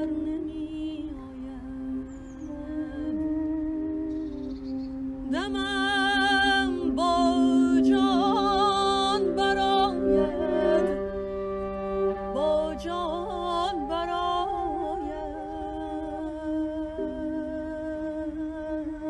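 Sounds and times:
bowed string drone: 0:00.0 - 0:19.0
end-blown flute: 0:00.0 - 0:19.0
woman singing: 0:00.0 - 0:19.0.

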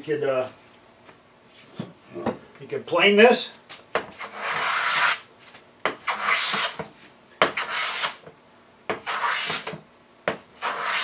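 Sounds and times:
hand plane shaving wood: 0:04.2 - 0:05.2, 0:06.0 - 0:06.8, 0:07.6 - 0:08.2, 0:09.0 - 0:09.8, 0:10.6 - 0:11.0.

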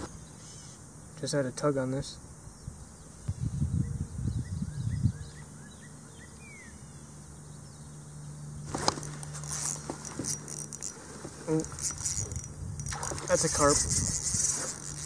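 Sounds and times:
bird singing: 0:00.0 - 0:15.0
low steady hum: 0:00.0 - 0:15.0
fishing reel clicking and rattling: 0:08.8 - 0:15.0.

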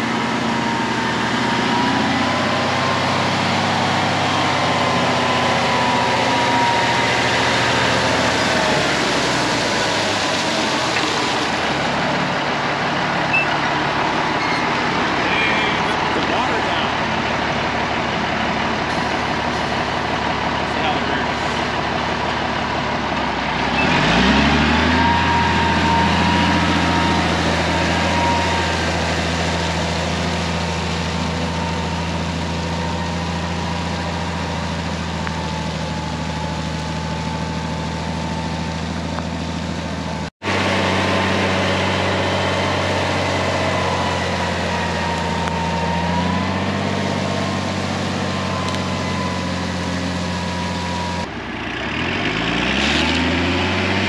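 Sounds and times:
truck engine under load: 0:00.0 - 0:54.0
water spraying: 0:03.2 - 0:13.3.

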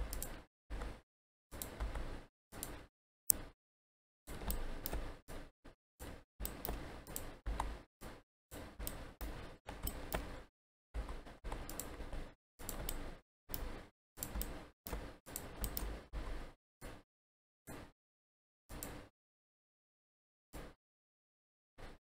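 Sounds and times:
keyboard and mouse clicking: 0:00.0 - 0:01.0, 0:01.6 - 0:03.5, 0:04.3 - 0:05.2, 0:06.0 - 0:07.8, 0:08.8 - 0:16.0.

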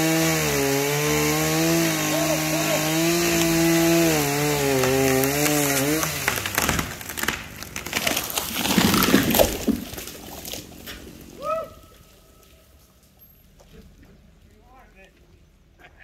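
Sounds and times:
chainsaw running: 0:00.0 - 0:09.0
branches snapping: 0:00.0 - 0:11.4
tree cracking and crashing: 0:00.0 - 0:13.2.

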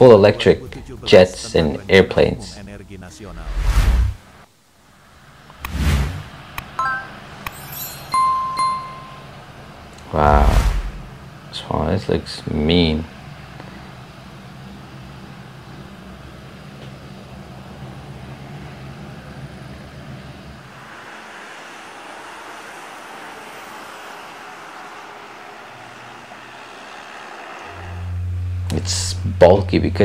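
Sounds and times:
turboprop engines droning: 0:00.0 - 0:30.0
high rushing noise: 0:03.3 - 0:04.3, 0:05.6 - 0:07.4, 0:10.1 - 0:11.2.

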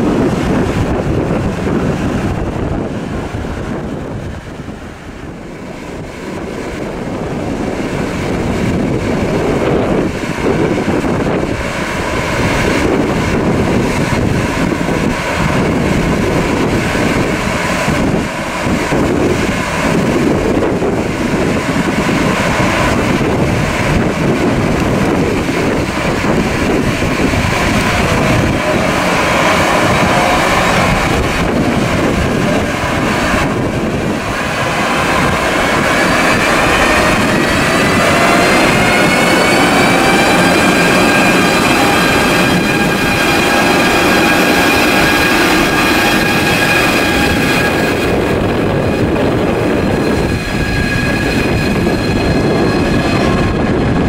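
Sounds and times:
train rumbling: 0:00.0 - 0:54.0
wind buffeting microphone: 0:00.0 - 0:54.0
rising electric whine: 0:22.6 - 0:54.0.

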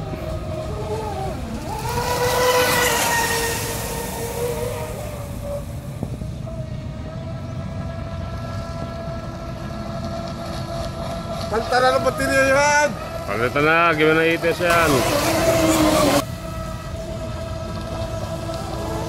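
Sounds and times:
boat hull hissing over water: 0:00.0 - 0:06.8
electric motor whine: 0:00.0 - 0:19.0.

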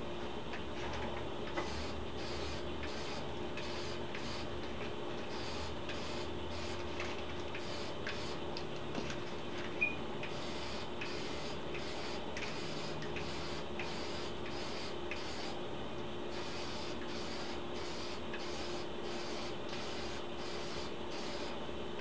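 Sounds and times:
steady low hum: 0:00.0 - 0:22.0
aerosol can spraying: 0:01.6 - 0:04.5, 0:05.3 - 0:08.4, 0:10.3 - 0:15.6, 0:16.3 - 0:21.5.

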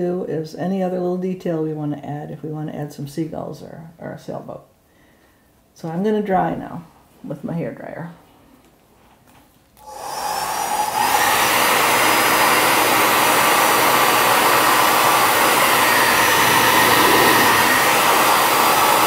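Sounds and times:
hair dryer blowing air: 0:09.8 - 0:19.0.

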